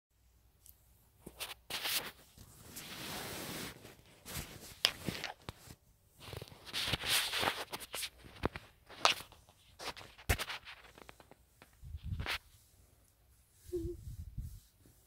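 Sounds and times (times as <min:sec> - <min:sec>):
bedsheets rustling: 0:01.3 - 0:15.0
microphone handling noise: 0:11.8 - 0:12.4.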